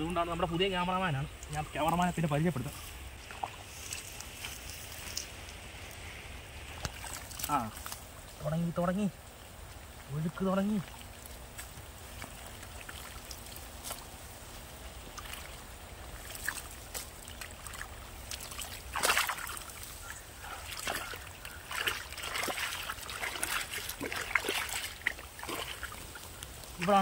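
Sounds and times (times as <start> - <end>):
muddy water trickling: 0.0 - 27.0
hands splashing in water: 15.1 - 26.0.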